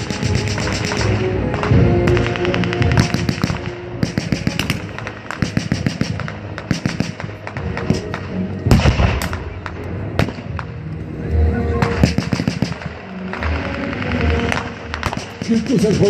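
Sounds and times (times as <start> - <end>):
automatic gunfire bursts: 2.1 - 7.2, 12.0 - 12.9
single gunshots: 2.1 - 9.5, 11.8 - 13.5.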